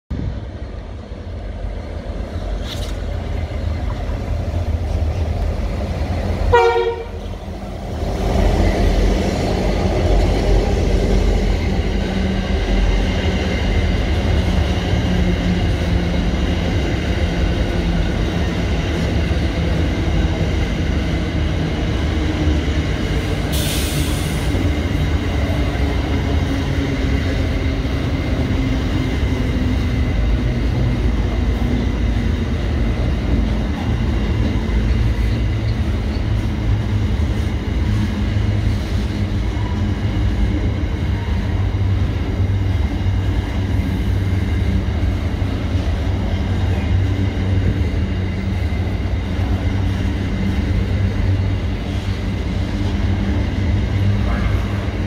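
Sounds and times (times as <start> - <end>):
train wagons rumbling and clattering: 0.1 - 55.0
train horn blast: 6.5 - 7.3.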